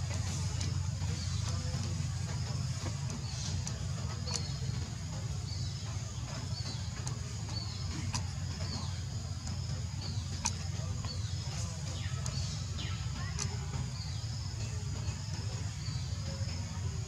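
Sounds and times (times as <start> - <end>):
sharp clicks: 2.8 - 4.8, 6.4 - 14.0.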